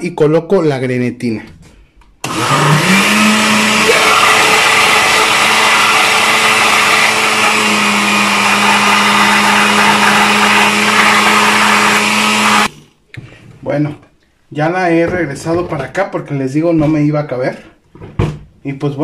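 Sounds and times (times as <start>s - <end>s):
blender running: 2.2s - 12.9s.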